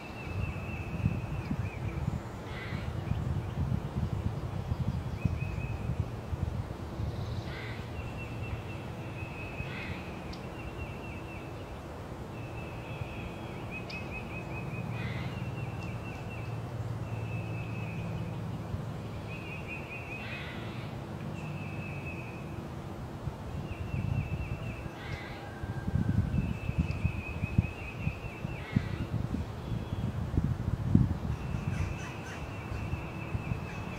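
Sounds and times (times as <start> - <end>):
crows cawing: 20.2 - 20.9, 25.0 - 25.6.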